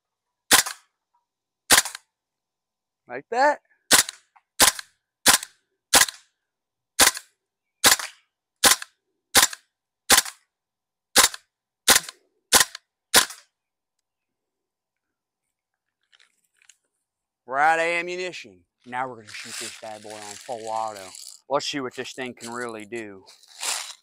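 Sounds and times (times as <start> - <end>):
airsoft rifle shots: 0.5 - 0.9, 1.7 - 2.0, 3.9 - 6.2, 7.0 - 10.4, 11.2 - 13.4.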